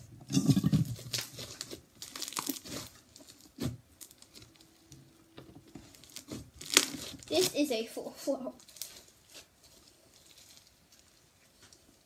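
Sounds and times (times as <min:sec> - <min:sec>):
slime crackling and squelching: 0:00.0 - 0:12.0.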